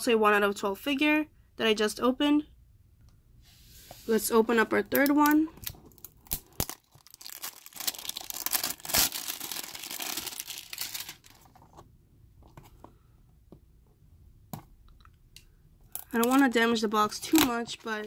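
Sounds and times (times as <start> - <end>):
plastic wrap tearing and crinkling: 5.2 - 11.6.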